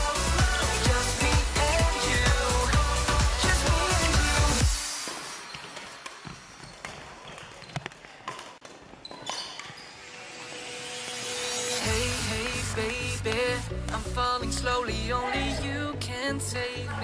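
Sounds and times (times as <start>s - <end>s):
footfalls on hall floor: 5.0s - 9.9s.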